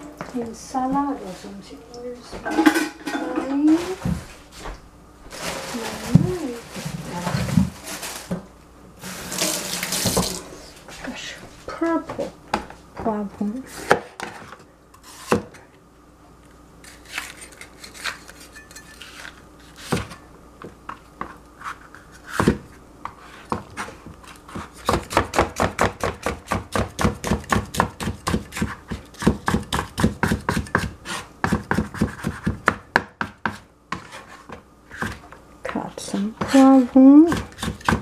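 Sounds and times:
knife chopping on plastic board: 24.5s - 35.3s, 36.4s - 38.0s.

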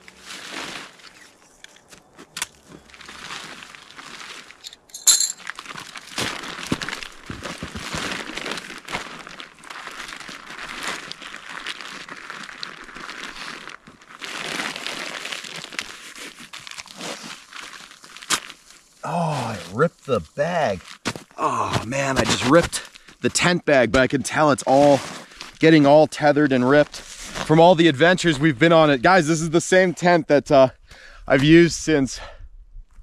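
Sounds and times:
nylon fabric rustling: 0.0s - 18.8s.

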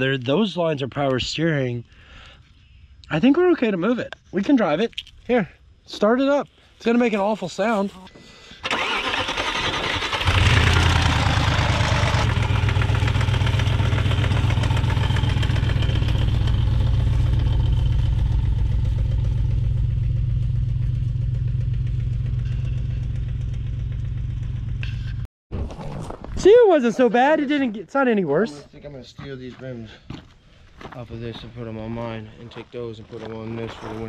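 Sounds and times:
car engine starting and idling: 8.6s - 25.2s.

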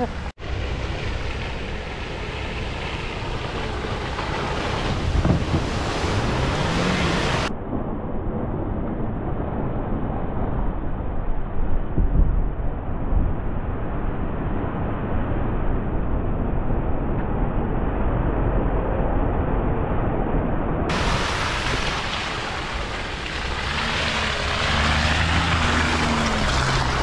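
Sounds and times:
wind noise on microphone: 0.8s - 27.0s
engine revving: 2.8s - 7.5s, 20.9s - 27.0s.

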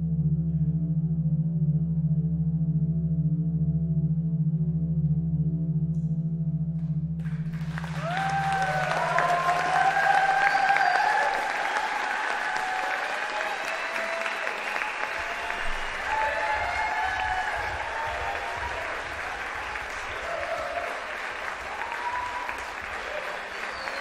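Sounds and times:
audience applauding: 7.2s - 24.0s
whoops and shouted cheers: 7.5s - 24.0s.

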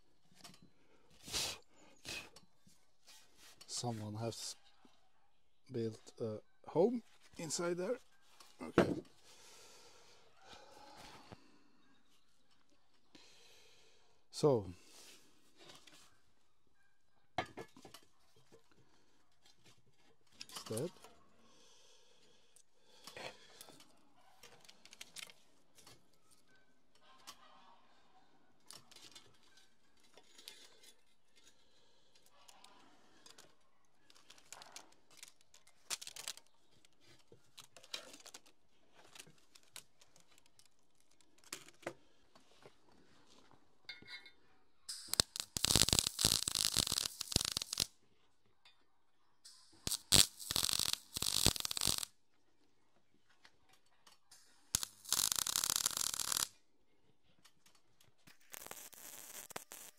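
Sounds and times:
loud hiss-like noise: 44.9s - 47.9s, 49.9s - 52.1s, 54.8s - 56.5s.

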